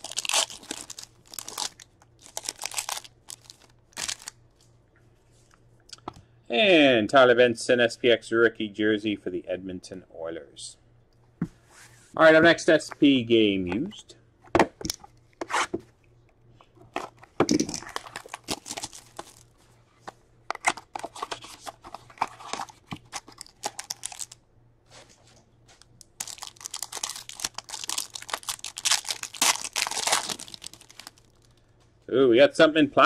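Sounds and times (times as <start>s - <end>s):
plastic wrapping tearing and crinkling: 0.0s - 4.3s, 17.7s - 19.5s, 20.6s - 24.4s, 25.8s - 31.6s.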